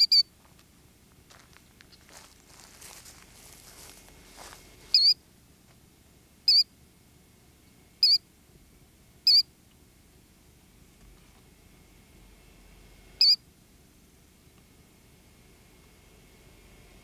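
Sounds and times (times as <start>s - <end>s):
killdeer calling: 0.0s - 0.3s, 4.9s - 5.2s, 6.4s - 6.7s, 8.0s - 8.3s, 9.2s - 9.5s, 13.2s - 13.4s.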